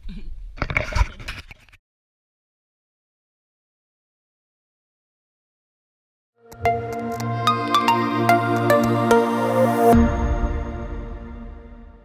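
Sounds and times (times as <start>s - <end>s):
electronic music with plucked notes: 6.4s - 11.0s.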